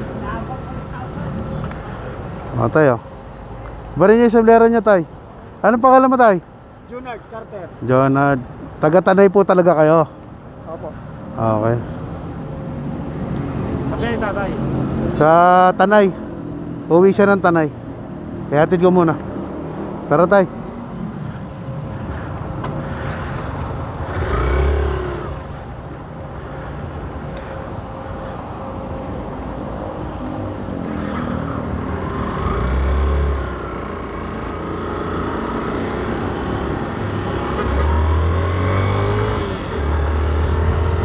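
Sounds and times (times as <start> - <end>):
road traffic: 0.0 - 41.0
motorcycle engine: 24.0 - 25.7.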